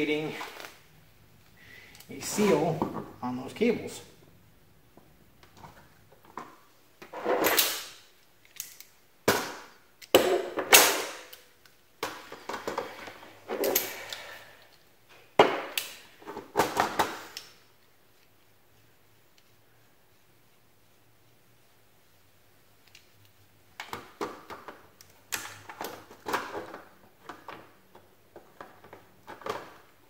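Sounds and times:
pliers clacking and scraping: 0:07.3 - 0:09.0.

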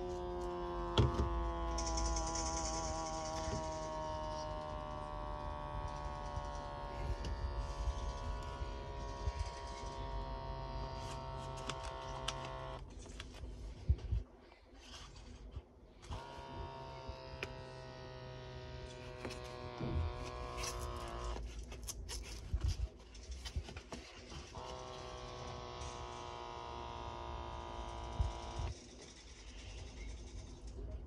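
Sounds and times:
electric air pump buzzing: 0:00.0 - 0:12.9, 0:16.0 - 0:21.6, 0:24.2 - 0:28.8.

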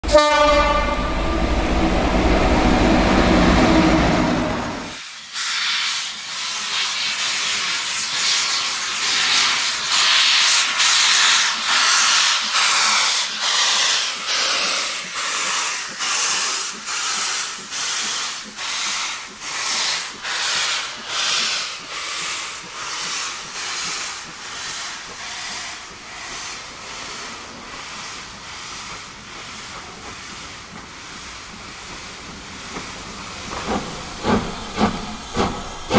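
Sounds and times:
train horn: 0:00.0 - 0:01.6, 0:02.2 - 0:05.0
steam locomotive chuffing: 0:00.1 - 0:35.9.

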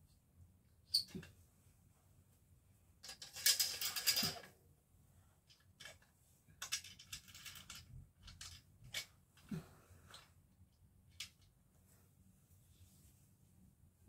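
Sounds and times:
curtain hooks scraping and clicking: 0:03.0 - 0:04.5, 0:05.5 - 0:09.1.

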